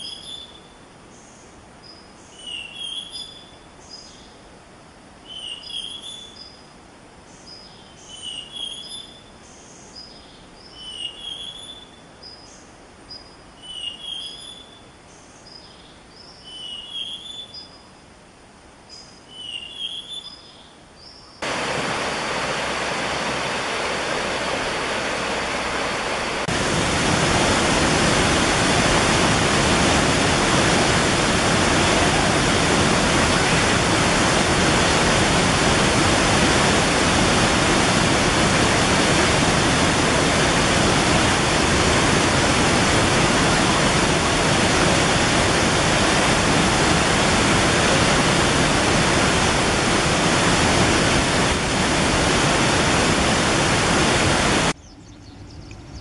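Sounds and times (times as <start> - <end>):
water rushing in a rocky stream: 21.4 - 54.8.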